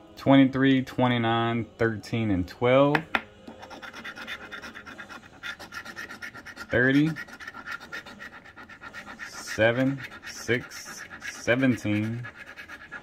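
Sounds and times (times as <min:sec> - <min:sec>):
scratching lottery ticket: 0:03.5 - 0:13.0.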